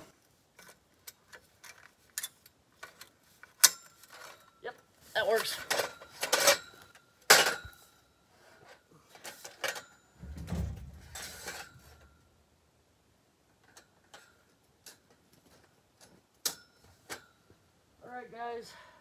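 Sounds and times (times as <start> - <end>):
metal tubes clanking: 9.2 - 12.1.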